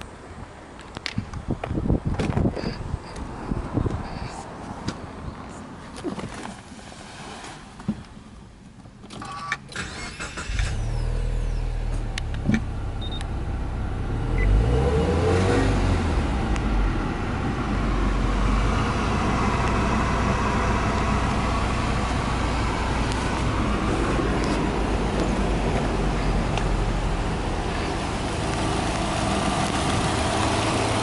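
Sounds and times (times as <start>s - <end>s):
car engine cranking and idling: 8.0s - 31.0s.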